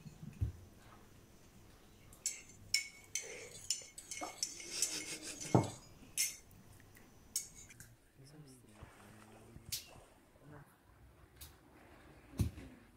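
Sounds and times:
fork scraping ceramic plate: 2.9s - 6.4s.

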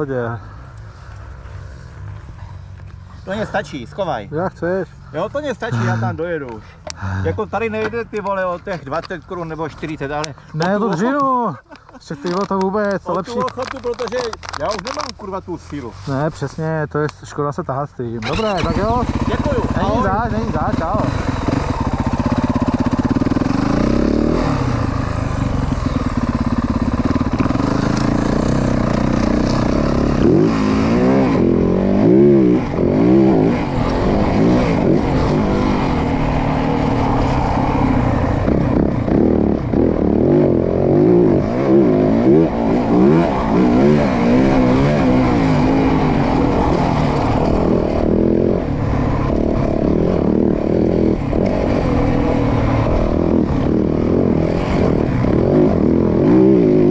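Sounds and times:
motorcycle engine revving: 18.2s - 56.9s.

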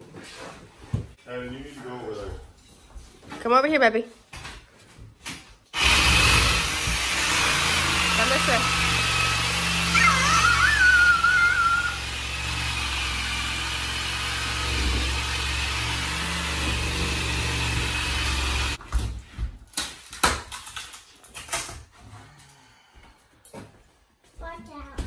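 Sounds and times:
power tool cutting wood: 5.8s - 18.8s.

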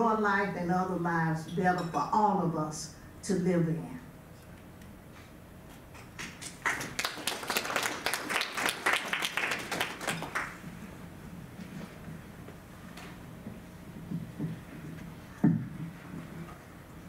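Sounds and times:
audience applauding: 6.2s - 10.6s.

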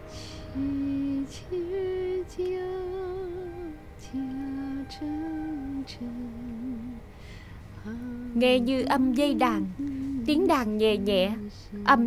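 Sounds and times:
woman breathing: 0.0s - 0.6s, 7.1s - 8.2s
woman singing a lullaby: 0.0s - 12.0s.

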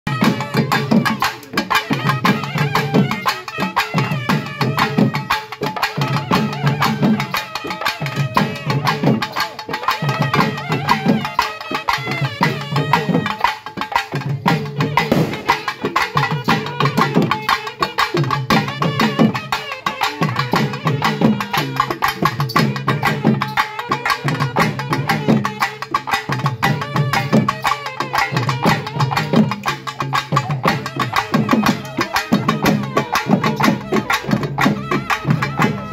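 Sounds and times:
fast festival drumming: 0.1s - 35.9s.

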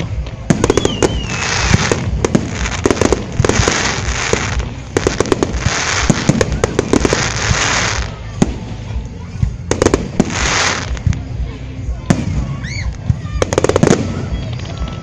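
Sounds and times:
fireworks bangs: 0.0s - 15.0s
firework whistle: 0.5s - 2.0s.

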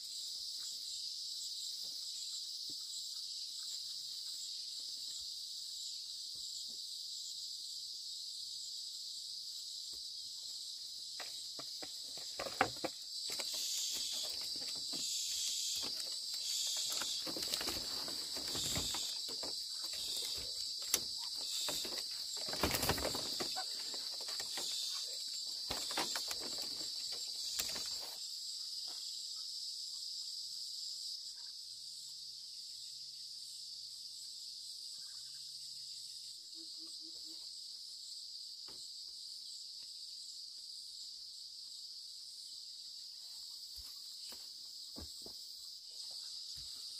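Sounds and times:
high-pitched insect chorus: 0.0s - 46.9s
rustling and crackling: 11.6s - 28.2s.

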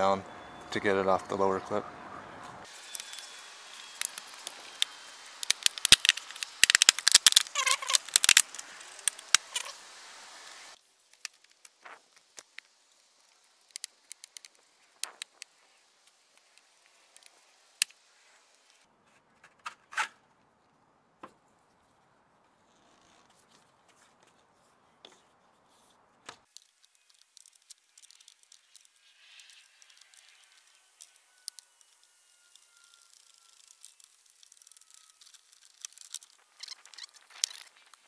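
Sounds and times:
plastic trim clips clicking: 4.0s - 9.7s.

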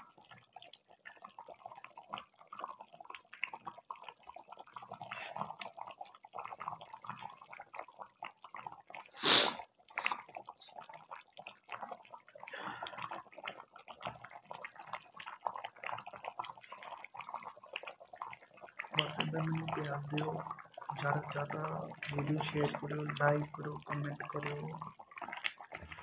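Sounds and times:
gravy bubbling in metal pan: 0.0s - 26.0s.

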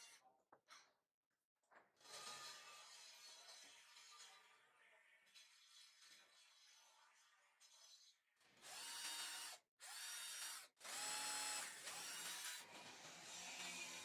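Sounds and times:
cordless drill driving screw: 8.6s - 13.8s.

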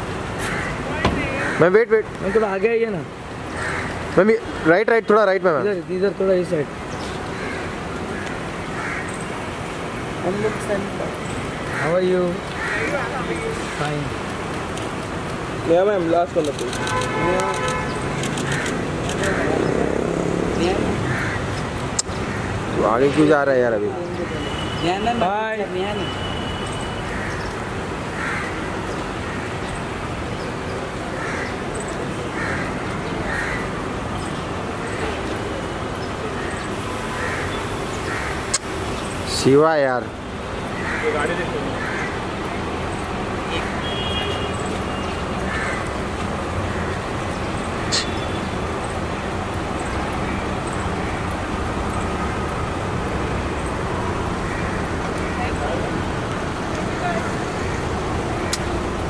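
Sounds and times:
street noise: 0.0s - 59.0s
crows cawing: 0.4s - 2.7s, 3.5s - 4.7s, 7.2s - 9.4s, 11.5s - 13.9s, 16.9s - 19.8s, 21.0s - 22.8s, 26.8s - 29.8s, 31.0s - 34.0s, 36.3s - 38.6s, 40.6s - 42.6s, 43.6s - 47.2s, 54.3s - 55.8s, 56.5s - 58.7s.

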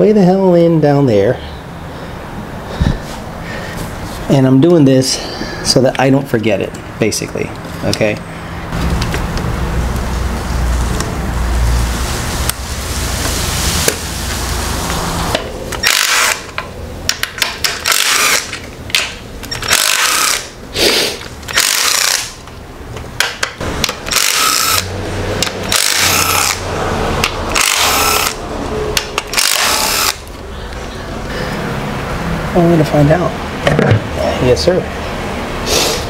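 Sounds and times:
power tool bursts with whine: 15.8s - 16.4s, 25.7s - 26.6s, 27.6s - 28.4s, 29.3s - 30.2s.

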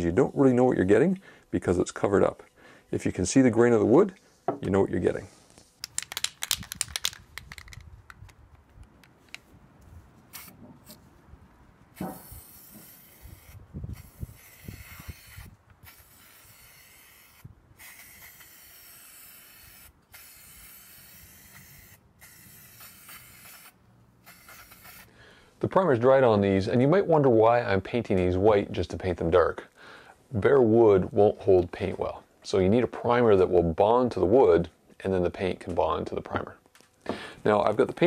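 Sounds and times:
aerosol spray can hissing: 10.3s - 10.5s, 12.0s - 25.1s.

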